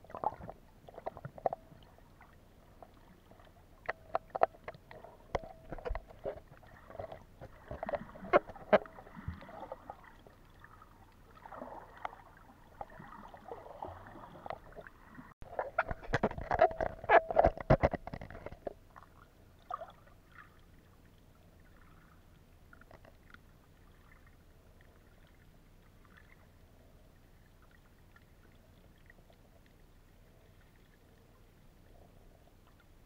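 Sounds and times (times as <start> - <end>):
underwater bubbling and splashing: 0.0 - 33.0
small crackles: 0.1 - 14.9, 21.6 - 33.0.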